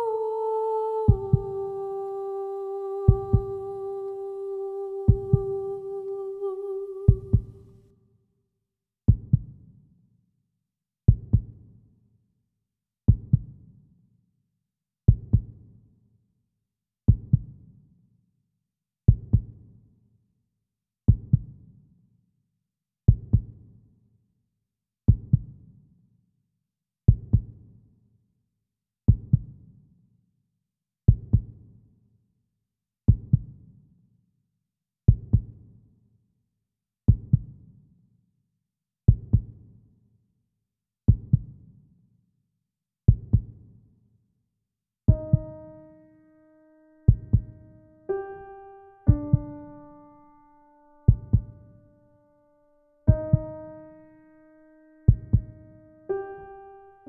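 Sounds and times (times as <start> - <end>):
heartbeat double thump: 51.1 - 51.5.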